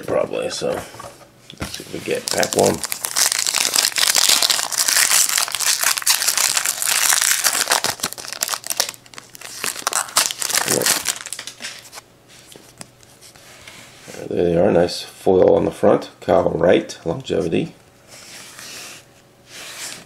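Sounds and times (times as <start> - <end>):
cards rustling: 1.7 - 13.0
foil wrapper tearing and crinkling: 2.1 - 11.9.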